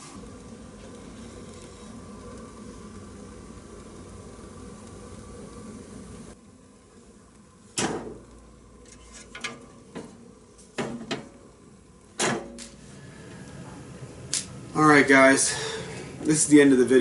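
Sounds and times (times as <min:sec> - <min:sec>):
wood fire hissing: 0:00.0 - 0:17.0
metal clanks of fireplace doors: 0:08.9 - 0:10.2, 0:10.8 - 0:11.4, 0:12.2 - 0:12.7.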